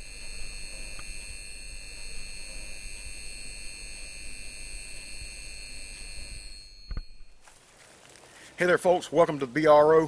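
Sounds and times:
high-pitched electrical buzz: 0.0s - 7.5s.

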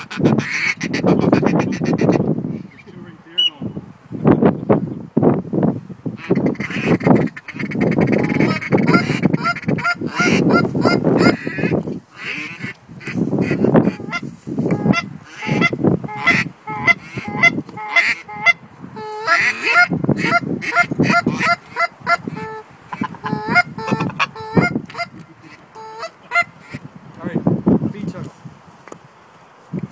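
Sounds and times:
goose calls honking: 0.0s - 2.2s, 6.2s - 26.8s.

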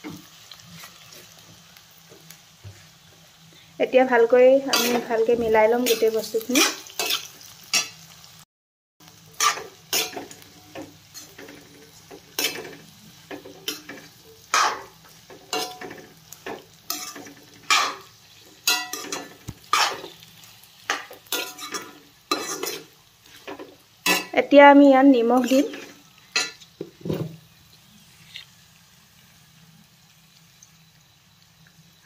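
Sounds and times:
oil sizzling: 0.0s - 32.0s
metal spoon scraping a pan: 4.6s - 8.1s, 9.3s - 24.5s, 25.2s - 27.3s, 28.0s - 28.5s.

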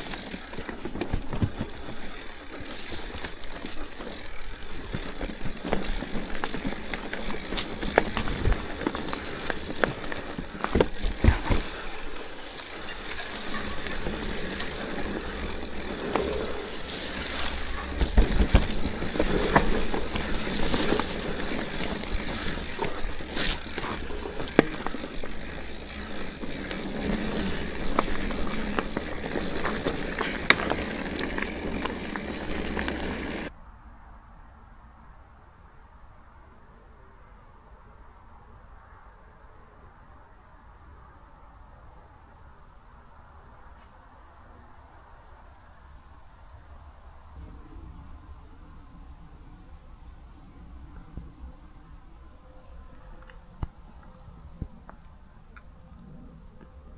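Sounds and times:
bike rattling and knocking: 0.0s - 33.5s
bike tyres rolling over stones: 0.0s - 33.5s.

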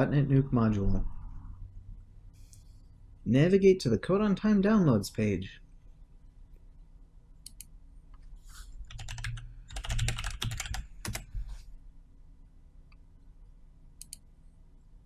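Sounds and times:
computer keyboard typing: 8.9s - 11.3s.

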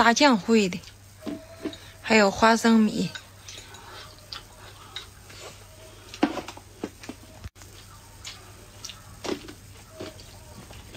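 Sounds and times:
mouth eating sounds: 3.4s - 10.9s.

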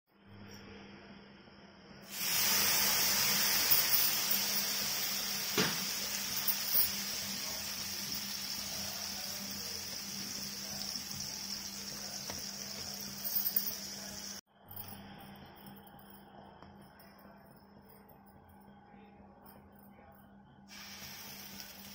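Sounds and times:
water sizzling on hot griddle: 2.1s - 14.4s, 20.7s - 21.9s.

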